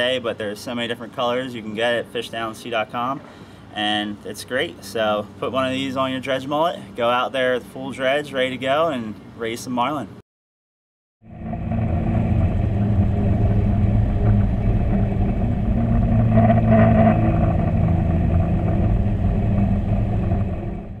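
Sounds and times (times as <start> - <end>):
boat engines droning underwater: 11.2 - 21.0.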